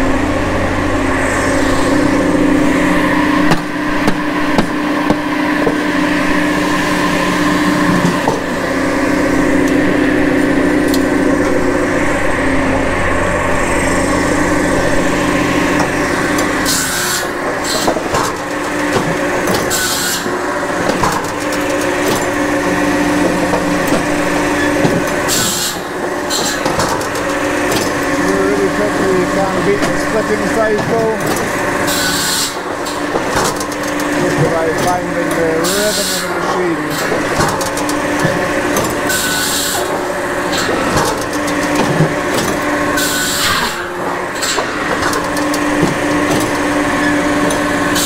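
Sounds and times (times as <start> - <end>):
machine mechanical hum: 0.0 - 48.0
logs scraping on steel trough: 15.7 - 48.0.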